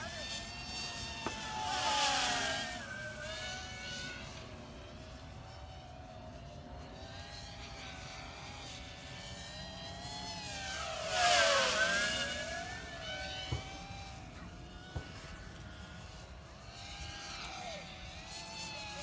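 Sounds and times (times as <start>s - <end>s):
quadcopter motors whining: 0.0s - 19.0s.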